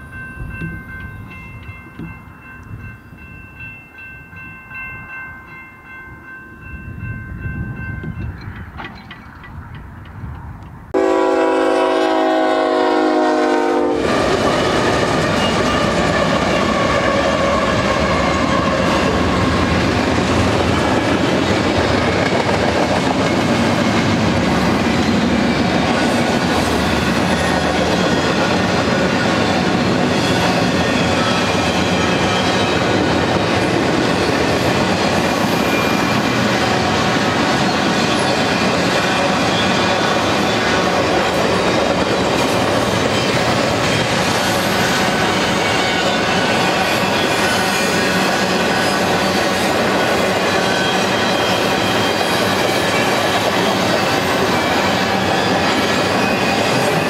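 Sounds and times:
freight train rolling past: 0.0 - 57.0
steel wheels clattering on rail: 7.8 - 11.0, 14.0 - 57.0
locomotive air horn chord: 11.0 - 14.1.

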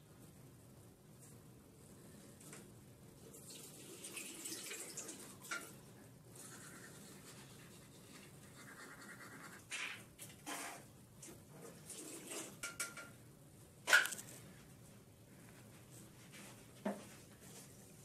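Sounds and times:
tap water running: 3.2 - 5.9, 11.7 - 13.1
toothbrush scratching: 6.4 - 10.8.

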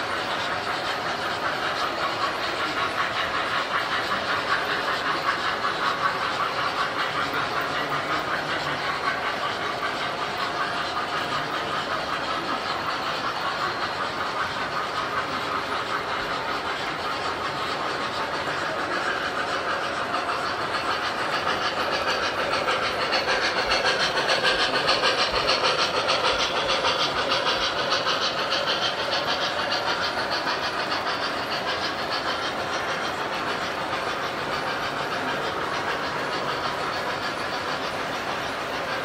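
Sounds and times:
model train wheels clicking on rails: 0.0 - 39.0.

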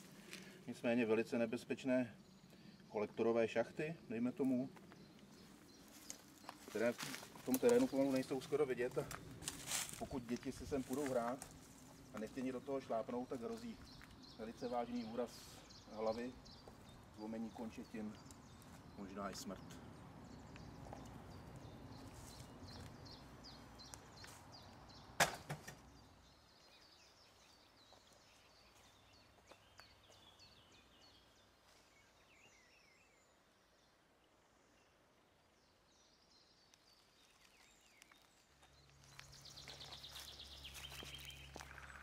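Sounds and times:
footsteps through dry leaves: 5.4 - 12.4, 22.0 - 23.0, 37.0 - 42.0
sharp knock: 25.2 - 25.8.

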